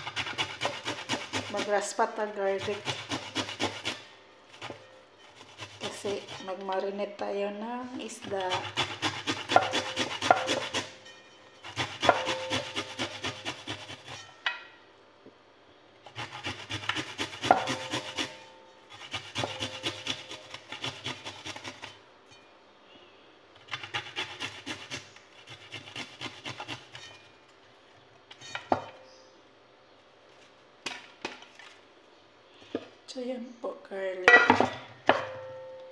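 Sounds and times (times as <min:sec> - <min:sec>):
garlic grated on metal grater: 0:00.0 - 0:07.0, 0:08.0 - 0:14.3, 0:16.1 - 0:22.0, 0:23.7 - 0:27.2.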